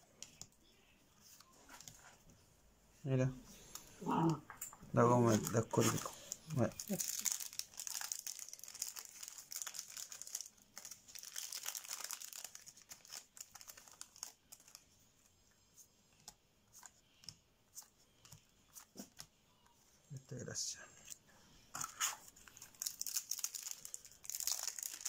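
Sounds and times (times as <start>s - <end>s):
foil wrapper crinkling: 5.2s - 14.8s, 22.4s - 25.0s.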